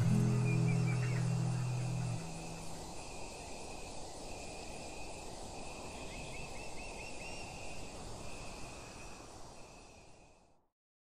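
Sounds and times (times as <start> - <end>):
bird chirps: 0.0 - 2.8
high insect trill: 0.0 - 10.4.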